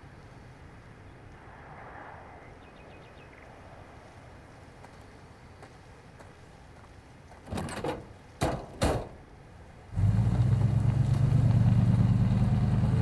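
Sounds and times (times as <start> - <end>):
truck door opening and shutting: 7.4 - 9.2
truck engine starting and running: 9.9 - 13.0.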